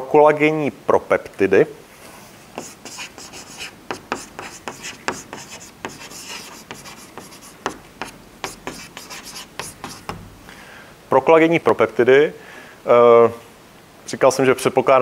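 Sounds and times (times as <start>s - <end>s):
chalk writing on a chalkboard: 2.6s - 10.2s.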